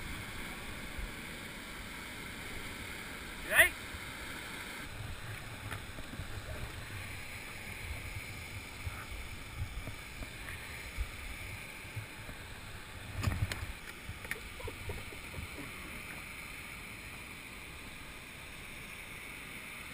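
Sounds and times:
whitewater rushing: 0.0 - 19.1
kayak knocking and scraping on rock: 4.9 - 10.8
wind rumbling on microphone: 4.9 - 16.2.

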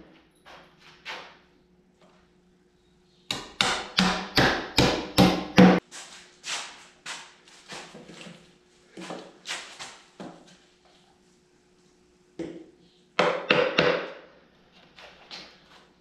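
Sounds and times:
hammer striking wood: 3.3 - 5.8, 13.2 - 14.2.

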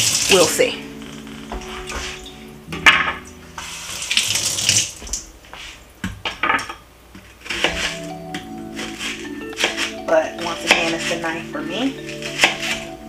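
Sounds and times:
onion skin rustling and scraping: 7.1 - 13.0.

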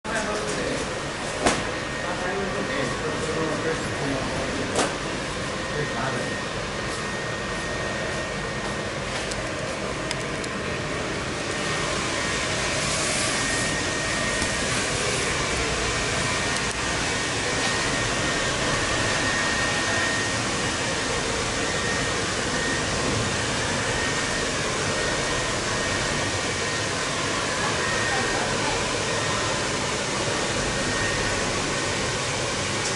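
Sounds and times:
inflation blower rushing air: 9.4 - 32.9.

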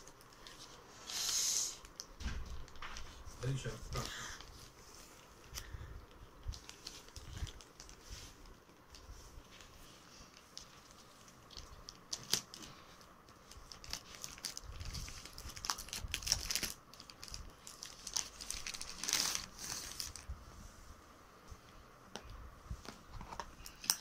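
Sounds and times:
plastic mailer crinkling: 1.9 - 9.0, 9.6 - 20.3.

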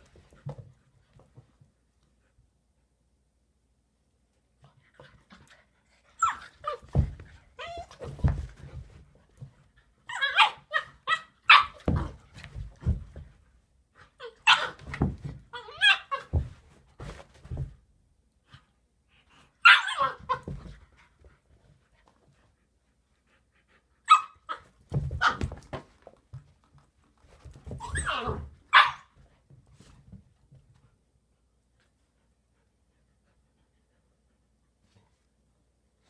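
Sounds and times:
dogs barking and yipping: 10.1 - 12.1, 19.6 - 20.6, 27.9 - 29.1.

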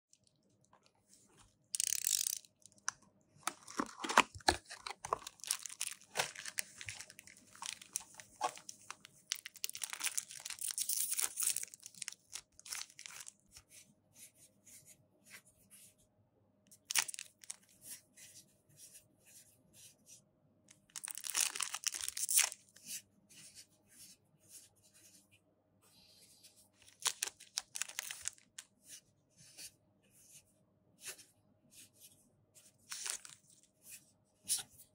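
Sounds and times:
plastic wrap and foil tearing: 3.6 - 8.7, 9.3 - 13.3, 21.0 - 22.6.

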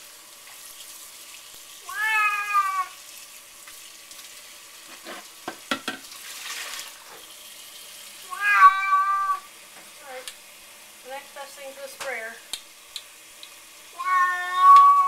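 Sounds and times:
tap water running: 0.0 - 15.0
cat meowing: 1.8 - 3.0, 8.2 - 9.5, 13.9 - 15.0.

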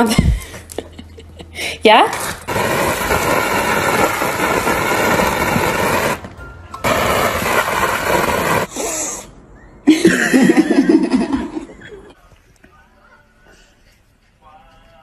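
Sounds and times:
hose water spraying against glass: 2.3 - 9.0.

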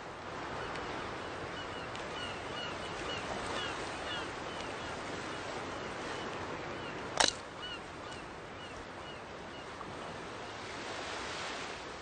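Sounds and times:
sharp crack: 7.2 - 7.4.

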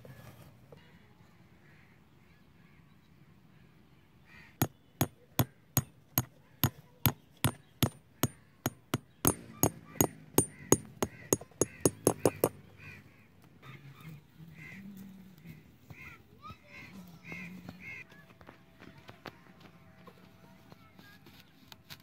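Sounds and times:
hammer knocking on peg: 4.6 - 12.6.

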